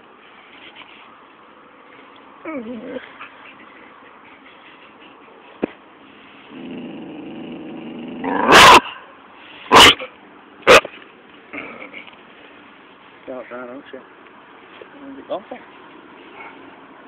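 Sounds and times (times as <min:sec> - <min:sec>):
dog growling low: 0:02.4 - 0:03.2, 0:06.5 - 0:08.5
dog barking loudly: 0:08.3 - 0:09.1, 0:09.7 - 0:10.9.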